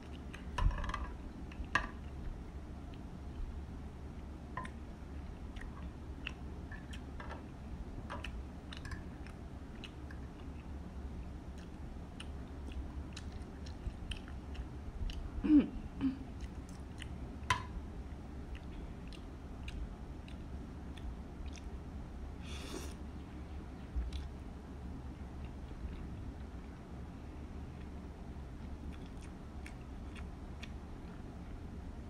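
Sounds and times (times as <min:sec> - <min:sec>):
close chewing of noodles: 0:08.2 - 0:15.4, 0:16.3 - 0:17.3, 0:18.4 - 0:21.8, 0:28.6 - 0:31.3.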